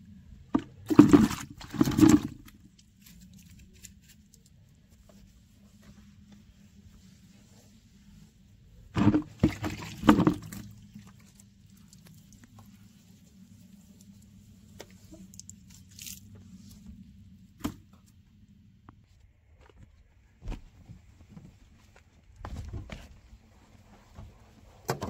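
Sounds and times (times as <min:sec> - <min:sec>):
sponge rubbing car paintwork: 0:04.2 - 0:09.0.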